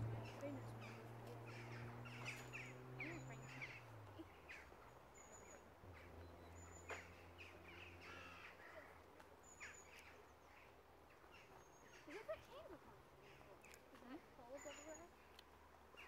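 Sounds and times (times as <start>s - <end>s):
low distant hum: 0.0s - 16.0s
faint bird chirps: 0.2s - 12.6s.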